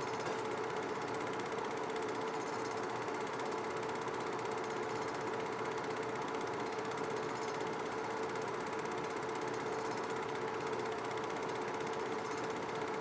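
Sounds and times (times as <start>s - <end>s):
film projector clattering: 0.0s - 13.0s.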